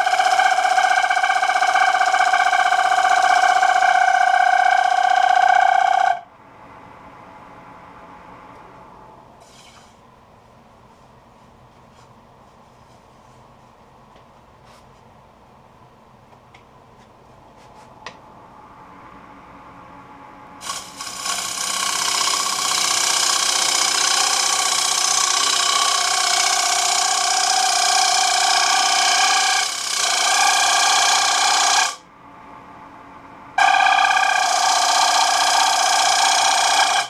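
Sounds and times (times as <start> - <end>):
lathe tool squealing on wood: 0.0 - 6.2, 20.6 - 32.0, 33.6 - 37.0.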